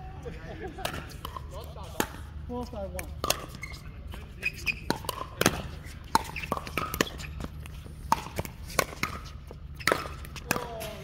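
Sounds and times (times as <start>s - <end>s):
paddles striking pickleball: 2.9s - 11.0s.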